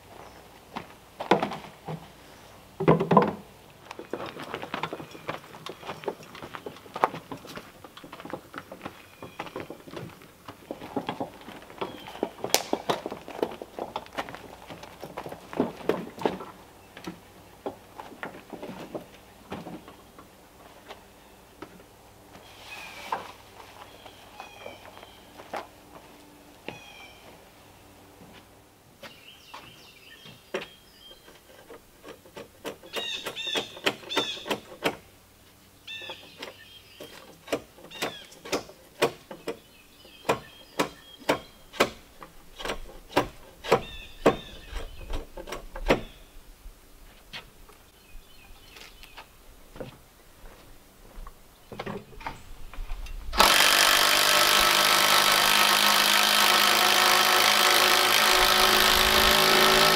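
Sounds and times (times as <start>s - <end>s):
electric drill boring into wood: 53.4s - 59.9s.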